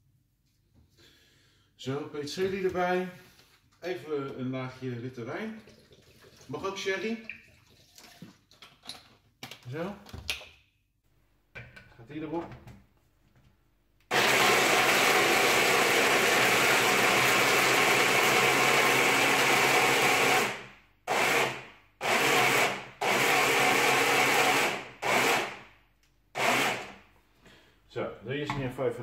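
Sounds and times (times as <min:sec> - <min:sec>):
electric food chopper grinding: 0:14.1 - 0:25.6, 0:26.4 - 0:27.0.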